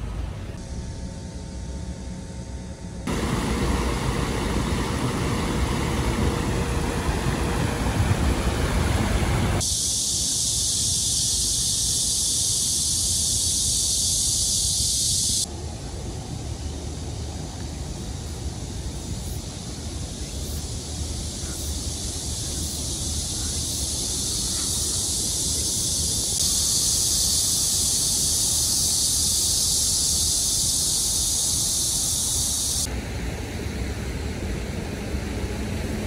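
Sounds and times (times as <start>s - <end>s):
outdoor noise: 0.0s - 36.0s
bright high hiss: 3.0s - 34.0s
stream rushing: 3.1s - 9.6s.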